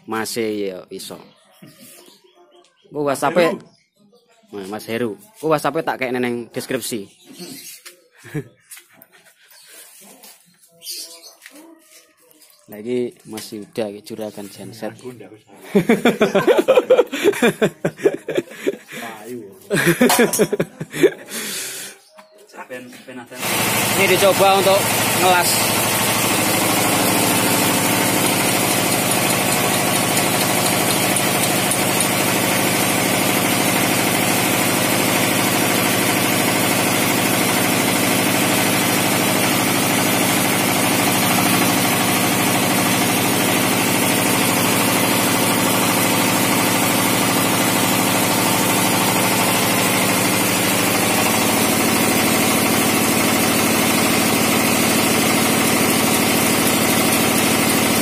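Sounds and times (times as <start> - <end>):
diesel engine running steadily: 23.4 - 58.0.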